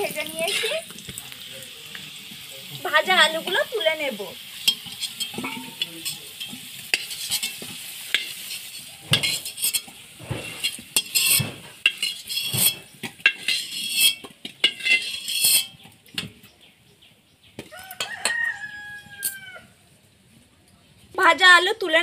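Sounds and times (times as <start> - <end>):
metal spatula scraping pan: 0.0 - 0.9, 3.0 - 15.9
potatoes sizzling in oil: 0.0 - 16.5, 17.6 - 19.6
spatula clinking on wok: 4.6 - 10.0, 10.6 - 15.8, 17.8 - 19.4.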